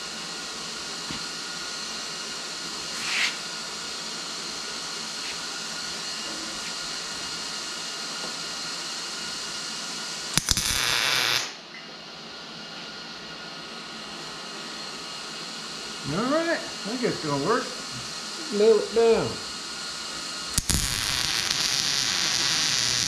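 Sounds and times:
sharp welding cracks: 10.3 - 11.6, 20.5 - 23.0
welder arc crackling: 10.3 - 11.6, 20.4 - 23.0.

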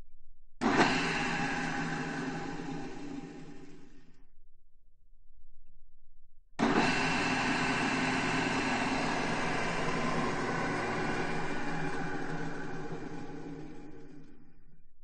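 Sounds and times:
drill press humming and whining: 0.6 - 4.2, 6.6 - 15.0.

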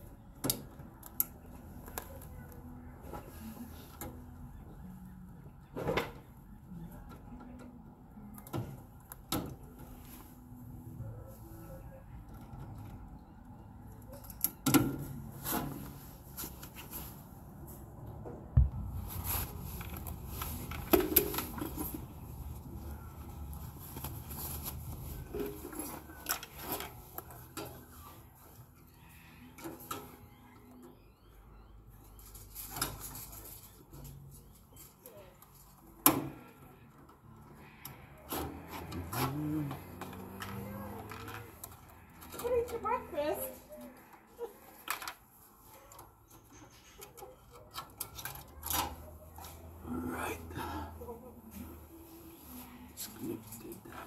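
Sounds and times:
low thump: 18.6 - 19.1.

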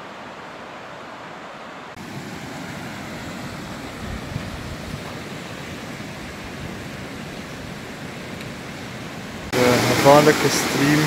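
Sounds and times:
creek rushing over rocks: 0.0 - 11.0
wind on the microphone: 3.9 - 5.4.

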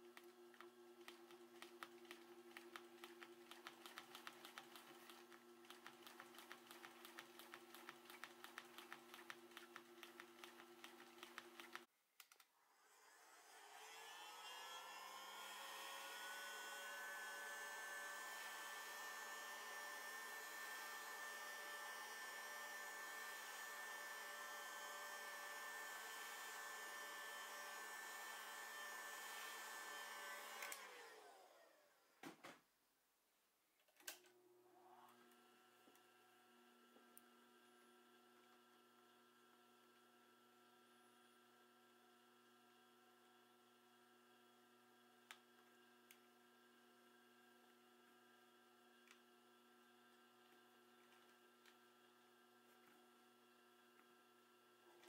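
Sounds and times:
sewing machine stitching: 0.0 - 11.9
hot-air gun fan whine: 12.7 - 31.9.

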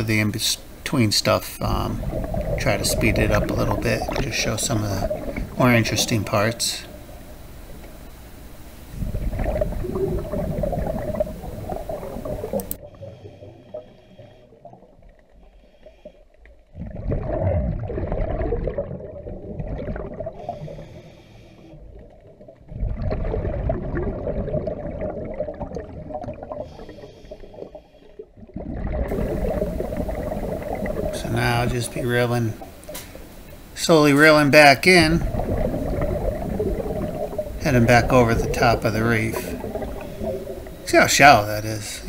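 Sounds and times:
exhaled bubbles burbling: 1.6 - 8.0, 8.9 - 15.4, 16.6 - 21.0, 21.7 - 33.7, 34.3 - 42.0
inhale hissing through regulator: 12.8 - 14.6, 20.4 - 21.8, 26.6 - 28.2.

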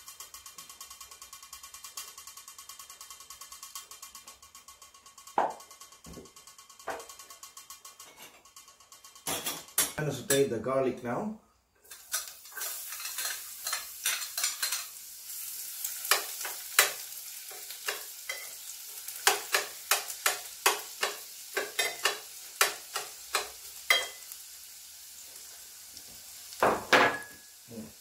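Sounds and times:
garlic sizzling in a pan: 0.0 - 9.9, 11.8 - 28.0
metal spoon scraping a pan: 6.8 - 10.5, 11.8 - 24.4.

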